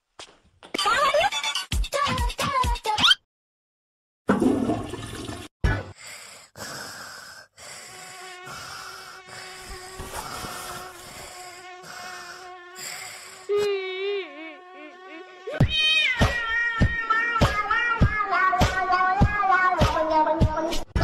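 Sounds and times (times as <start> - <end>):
toilet flushing: 4.3 - 5.5
insect buzzing: 6.8 - 20.4.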